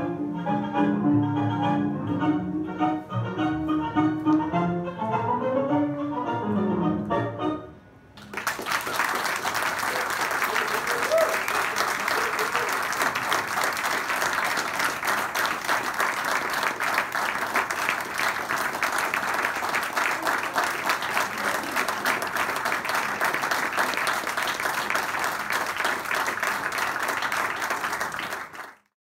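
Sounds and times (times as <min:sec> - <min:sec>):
audience applauding: 0:08.2 - 0:28.9.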